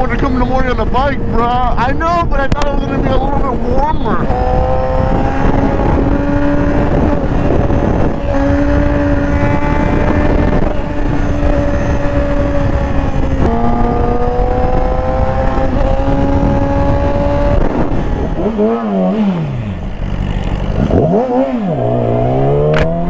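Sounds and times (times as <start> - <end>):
motorcycle engine at high revs: 0.0 - 23.0
wind on microphone: 0.0 - 23.0.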